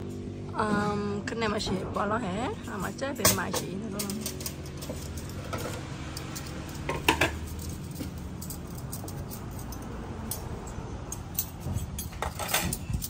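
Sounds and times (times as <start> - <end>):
tableware clinking against dishes: 3.2 - 10.5.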